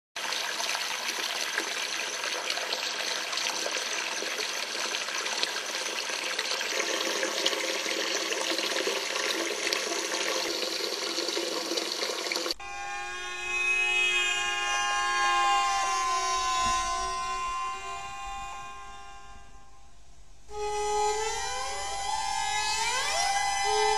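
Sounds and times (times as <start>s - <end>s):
tap water running into sink: 1.1s - 12.6s
steady held multi-pitch tone: 12.5s - 23.9s.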